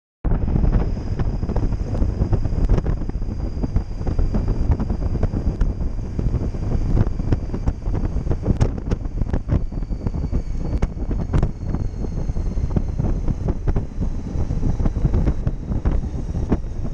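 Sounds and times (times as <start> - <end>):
faint steady high whine: 0.3 - 16.9
wind buffeting microphone: 0.3 - 16.9
scattered pops: 3.7 - 9.6.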